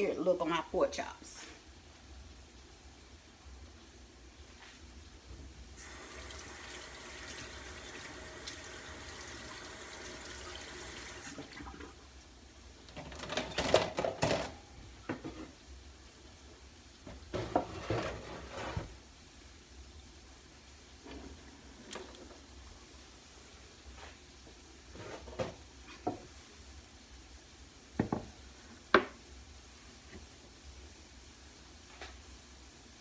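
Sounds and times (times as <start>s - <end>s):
tap water running: 5.8s - 12.0s.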